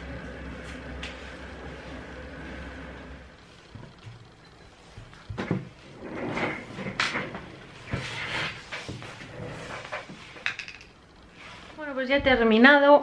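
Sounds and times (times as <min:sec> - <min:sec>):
knocks and clatters of handling: 0:03.8 - 0:11.0.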